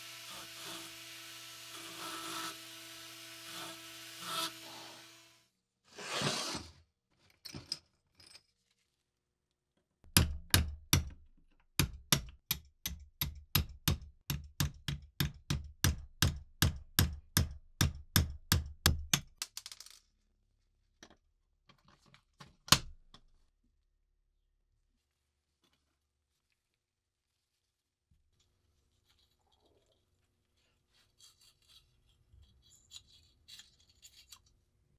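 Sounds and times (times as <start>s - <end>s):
hammer tapping a steel punch: 10.1s - 11.2s.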